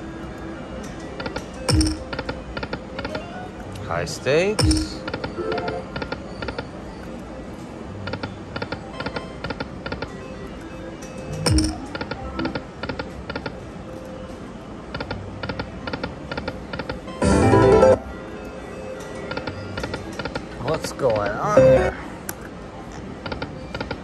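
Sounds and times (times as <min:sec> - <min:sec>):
slot reels clicking ticks: 0:00.8 - 0:03.2, 0:11.0 - 0:13.6
slot machine music: 0:01.5 - 0:02.1, 0:10.2 - 0:12.8, 0:17.2 - 0:18.7, 0:21.4 - 0:22.1.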